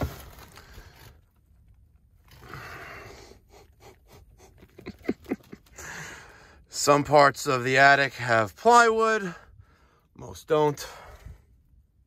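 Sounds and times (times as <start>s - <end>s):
rustling and scraping: 0.0s - 2.6s.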